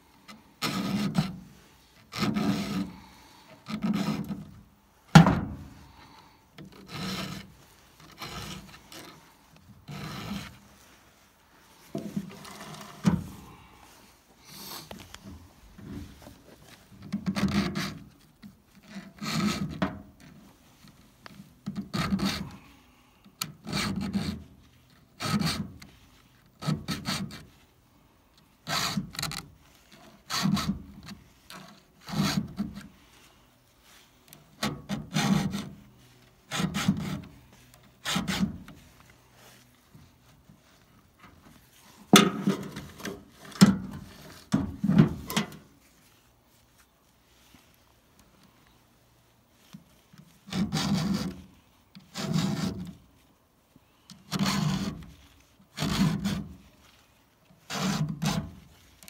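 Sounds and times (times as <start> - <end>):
file stroking chainsaw teeth: 0.6 - 1.3, 2.0 - 3.0, 3.6 - 4.4, 6.7 - 9.2, 26.6 - 27.4, 34.6 - 35.7, 52.0 - 52.9, 54.3 - 55.1, 55.8 - 56.4.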